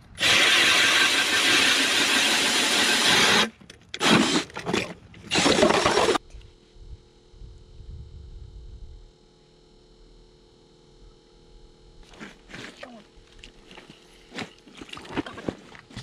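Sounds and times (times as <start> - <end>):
power ice auger grinding: 0.0 - 6.2.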